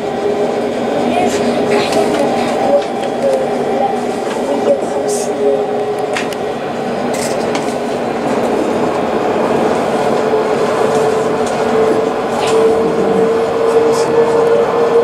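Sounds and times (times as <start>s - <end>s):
rail rolling noise: 0.0s - 15.0s
tram motor whine: 0.0s - 15.0s.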